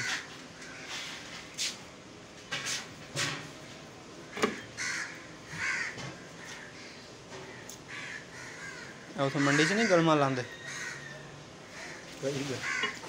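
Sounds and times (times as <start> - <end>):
harsh bird calls: 4.2 - 13.0.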